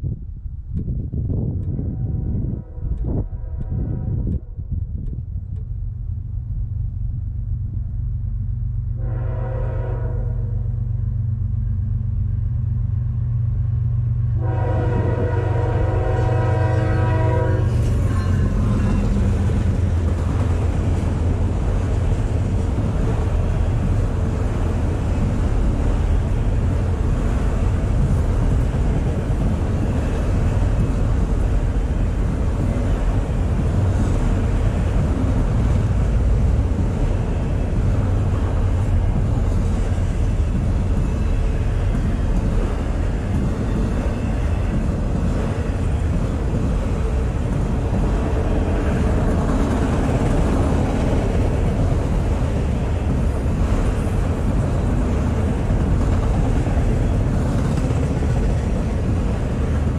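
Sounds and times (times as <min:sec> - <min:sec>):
train horn blasts: 0:01.8 - 0:04.6, 0:09.0 - 0:10.7, 0:14.4 - 0:19.4
diesel engine rumble: 0:04.7 - 0:09.0
train cars rolling over rails: 0:16.0 - 0:59.9.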